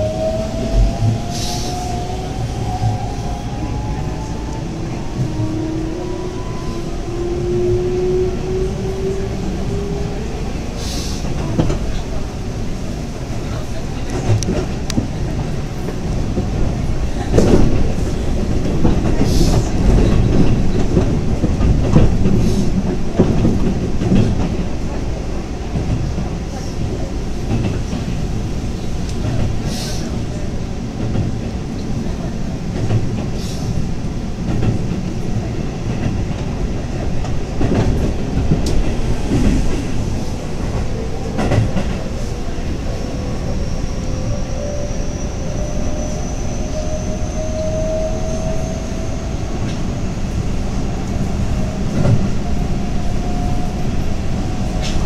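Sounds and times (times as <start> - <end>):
train wheels rumbling on rail: 0.0 - 55.0
clacks over rail joints: 14.0 - 25.0.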